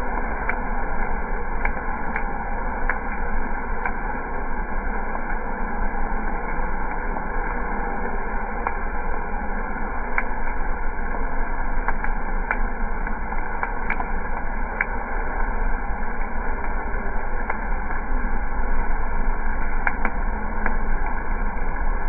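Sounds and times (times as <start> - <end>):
sharp clicks: 19.8 - 20.8.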